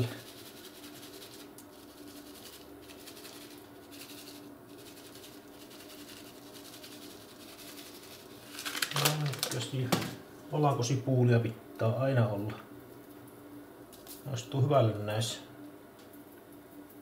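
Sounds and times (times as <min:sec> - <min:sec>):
seasoning shaker rattling: 0:00.0 - 0:09.9
faint steady hum: 0:00.0 - 0:17.0.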